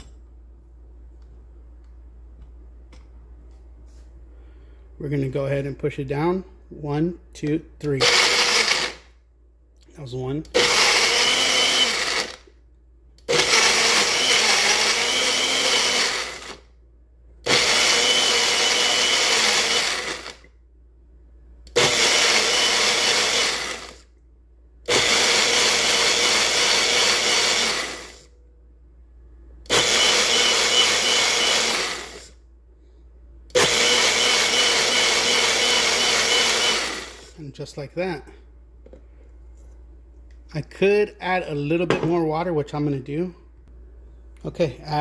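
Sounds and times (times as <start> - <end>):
blender motor running: 8.0 - 9.1, 10.5 - 12.5, 13.3 - 16.6, 17.5 - 20.5, 21.7 - 24.0, 24.9 - 28.3, 29.7 - 32.4, 33.5 - 37.4.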